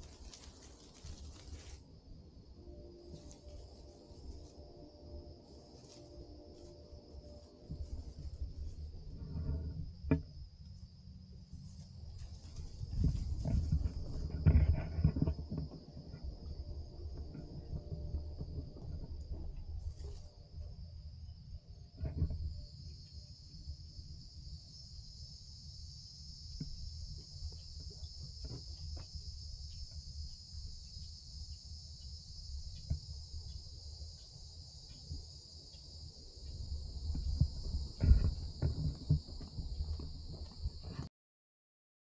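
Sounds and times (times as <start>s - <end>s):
faint crackles: 0.0s - 1.9s, 11.5s - 20.4s, 36.5s - 41.1s
high insect chorus: 0.0s - 41.1s
handling knocks and footsteps: 5.5s - 10.3s, 11.6s - 16.3s.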